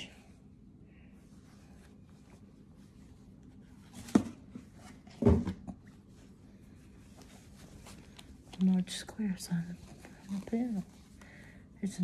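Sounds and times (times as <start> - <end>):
fabric rustling: 1.1 - 5.1, 5.8 - 11.2.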